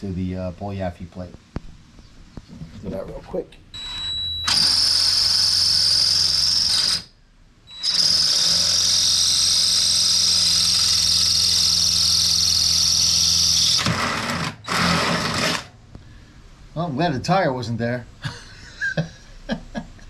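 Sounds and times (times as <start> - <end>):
cordless drill whining: 3.8 - 7.1, 7.7 - 15.7.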